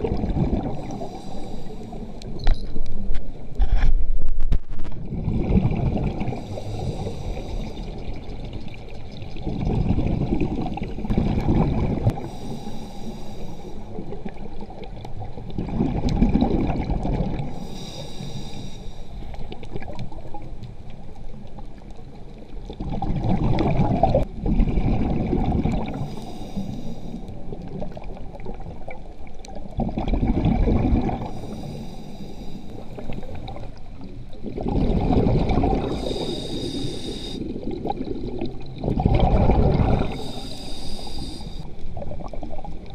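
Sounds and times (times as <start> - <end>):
gurgling exhaled bubbles: 0.0 - 2.4, 5.0 - 12.5, 13.9 - 17.7, 22.4 - 26.6, 27.3 - 31.7, 32.7 - 42.9
regulator hiss on inhale: 0.8 - 2.3, 6.4 - 8.3, 12.1 - 14.1, 17.5 - 19.5, 25.9 - 27.5, 31.2 - 33.4, 35.8 - 37.6, 40.0 - 41.8.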